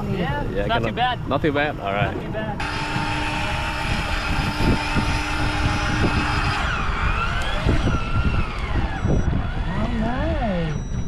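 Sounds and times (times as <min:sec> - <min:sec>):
low rumble of boat and wind: 0:00.0 - 0:11.0
fishing reel motor whining: 0:02.6 - 0:11.0.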